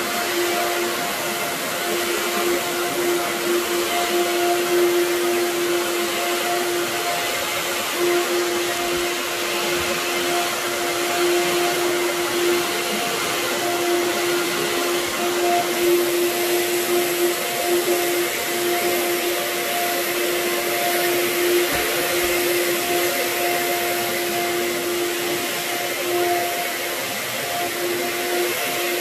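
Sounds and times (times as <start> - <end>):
vacuum cleaner on carpet: 0.0 - 29.0.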